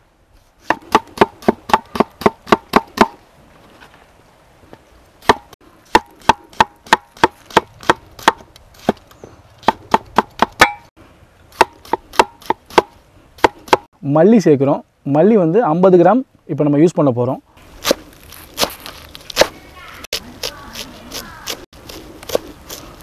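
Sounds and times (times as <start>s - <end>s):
knife slicing tomatoes: 20.1s - 23.0s.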